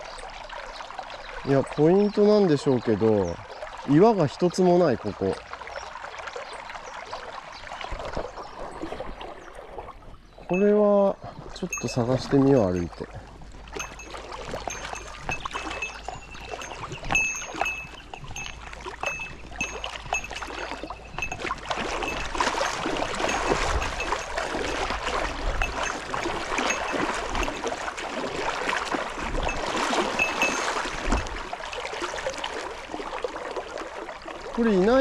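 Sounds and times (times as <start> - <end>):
water sloshing around legs: 2.2 - 35.0
stream rushing: 10.5 - 35.0.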